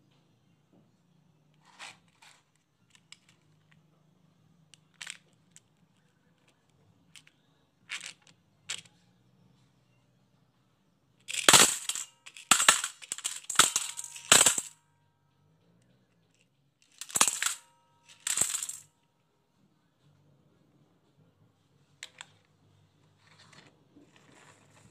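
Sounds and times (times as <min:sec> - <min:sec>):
marbles and beads clattering into bowl: 0:11.3 - 0:14.7, 0:16.9 - 0:18.9.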